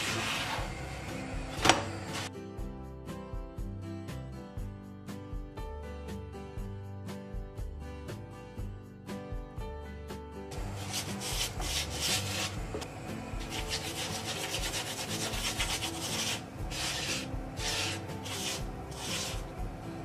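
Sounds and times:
spatula scraping on griddle: 0:00.0 - 0:00.8, 0:10.6 - 0:19.7.

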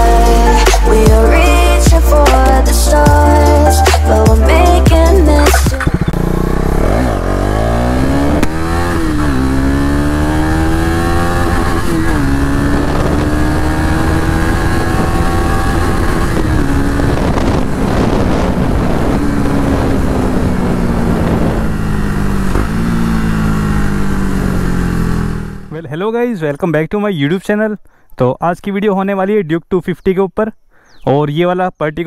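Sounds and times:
motorcycle engine revving and shifting: 0:03.4 - 0:25.7.

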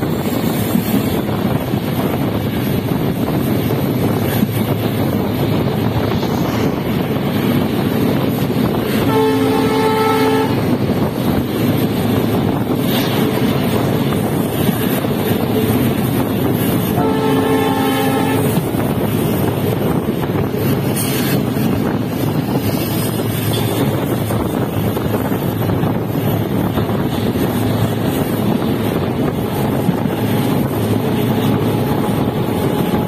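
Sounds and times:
train rail and wind noise: 0:00.0 - 0:33.0
locomotive horn: 0:08.9 - 0:10.8, 0:16.8 - 0:18.7.

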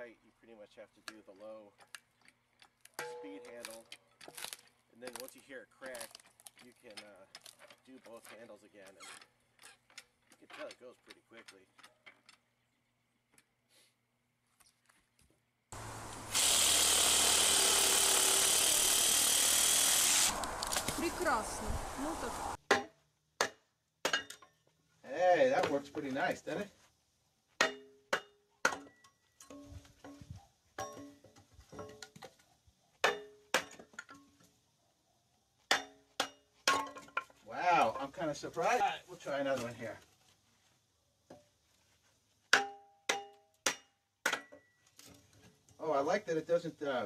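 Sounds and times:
wood splitting: 0:03.6 - 0:07.8, 0:15.8 - 0:21.3
power drill running: 0:15.8 - 0:20.8
hammer striking wood on metal blade: 0:22.7 - 0:24.4, 0:27.6 - 0:29.0, 0:42.5 - 0:44.6.

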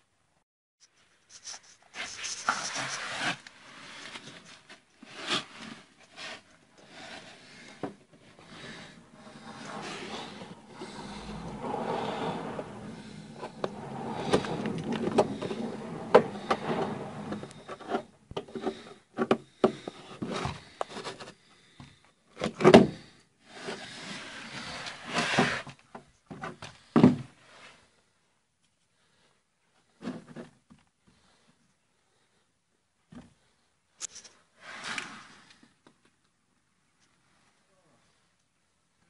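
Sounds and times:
rubbing and scraping on metal: 0:05.1 - 0:19.0.

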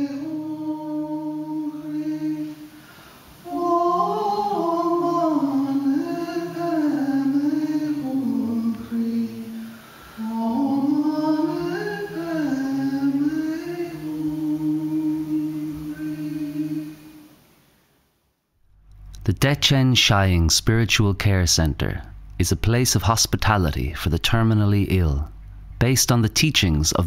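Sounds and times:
woman singing unaccompanied: 0:00.0 - 0:17.4.

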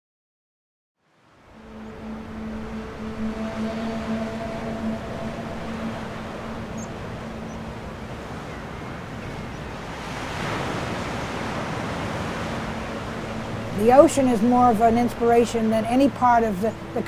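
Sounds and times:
surf washing over rocks: 0:07.2 - 0:17.0.

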